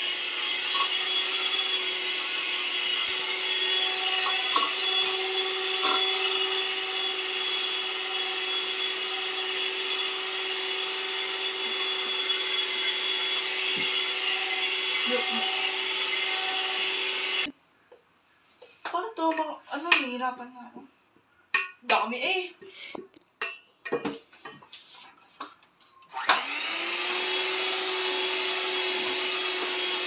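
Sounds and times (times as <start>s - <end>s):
electric hand mixer whirring: 0.0s - 17.5s, 26.1s - 30.0s.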